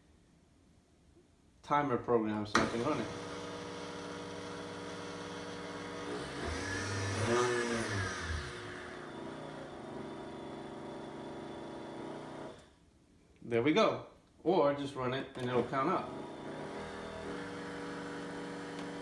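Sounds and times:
blender motor whine: 2.6 - 12.7, 15.4 - 19.0.

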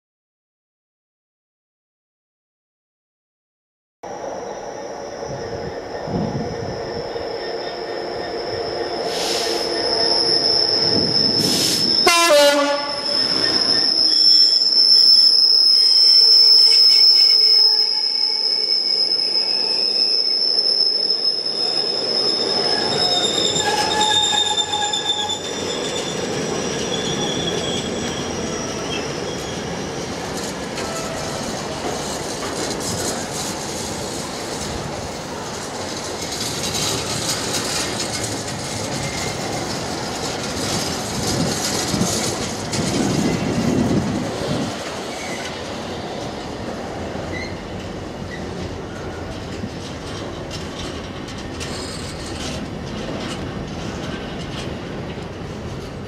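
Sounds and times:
diesel locomotive engine passing: 4.1 - 14.8, 21.3 - 56.0
high-pitched wheel squeal: 4.4 - 31.8, 36.2 - 45.6, 47.3 - 49.6, 51.6 - 52.6
locomotive horn: 12.0 - 13.2
wagons rumbling over rails: 21.4 - 56.0.

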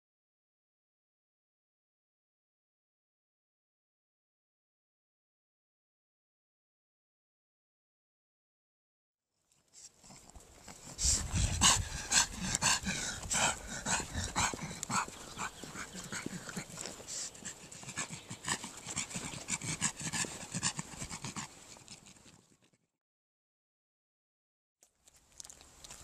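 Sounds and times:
dog panting noisily: 9.8 - 22.8.

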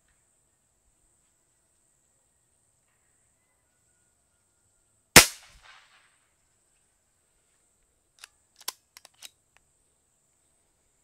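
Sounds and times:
air pistol shot echo: 5.2 - 5.9
light mechanical clicks: 8.2 - 9.7.

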